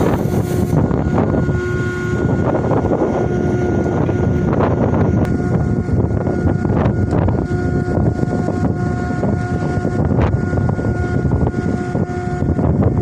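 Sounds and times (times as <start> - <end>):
faint whine: 0.0 - 13.0
ship machinery running: 0.0 - 13.0
wind buffeting microphone: 0.0 - 13.0.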